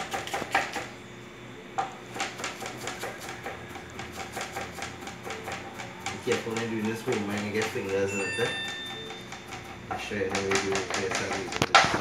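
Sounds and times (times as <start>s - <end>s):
knife chopping on wooden board: 0.0s - 0.9s, 2.1s - 12.0s.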